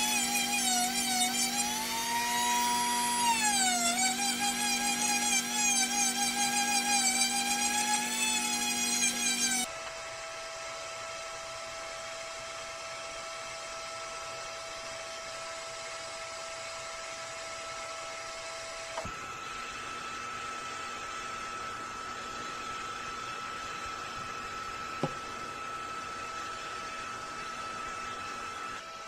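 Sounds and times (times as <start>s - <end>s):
rotary tool grinding wood: 0.0s - 9.8s
mechanical hum with whine: 0.0s - 29.0s.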